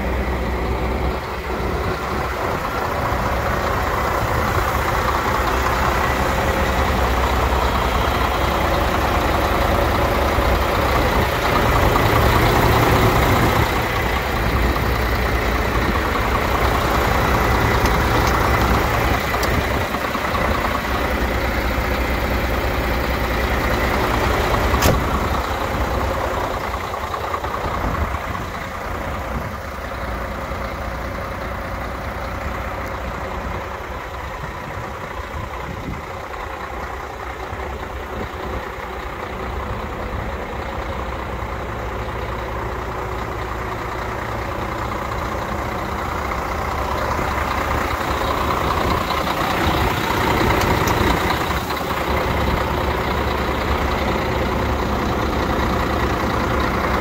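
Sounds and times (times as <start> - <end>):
truck diesel engine idling: 0.0 - 57.0
sharp click: 24.8 - 25.1.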